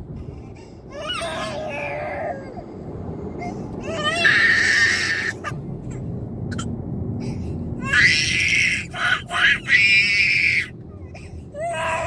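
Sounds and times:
road noise rumble: 0:00.0 - 0:12.0.

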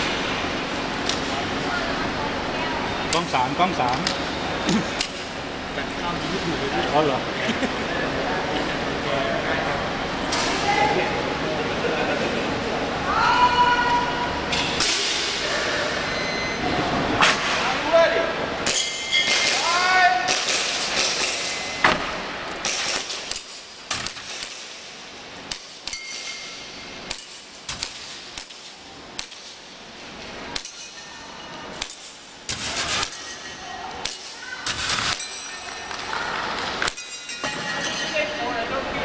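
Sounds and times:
steady high beep: 0:16.1 - 0:16.6
bbs clanging on steel targets: 0:25.5 - 0:29.5.

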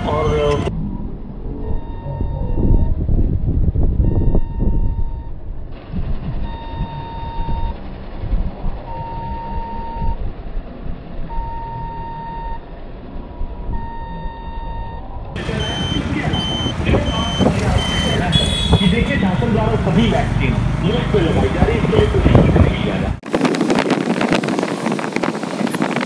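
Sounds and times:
electronic beep: 0:00.0 - 0:00.8, 0:01.5 - 0:03.0, 0:04.0 - 0:05.4, 0:06.4 - 0:07.8, 0:08.9 - 0:10.2, 0:11.3 - 0:12.6, 0:13.7 - 0:18.7
higher quicker beeping: 0:00.0 - 0:03.0
road traffic rumble: 0:00.0 - 0:26.0.

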